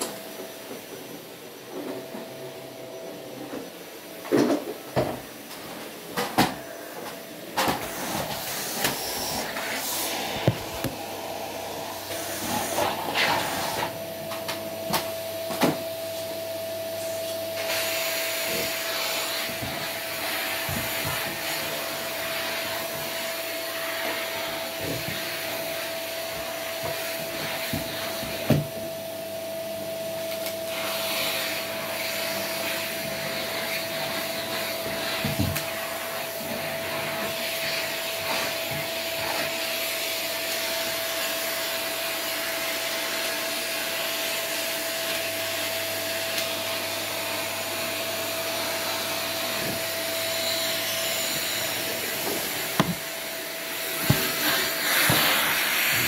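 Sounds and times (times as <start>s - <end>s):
canister vacuum cleaner whining: 0.0s - 56.0s
sharp knocks: 52.8s - 53.0s.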